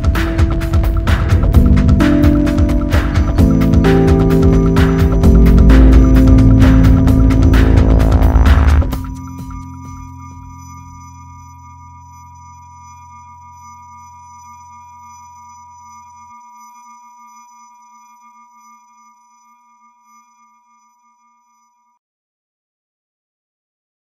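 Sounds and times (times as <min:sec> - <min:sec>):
electronic music chord: 0:00.0 - 0:17.0.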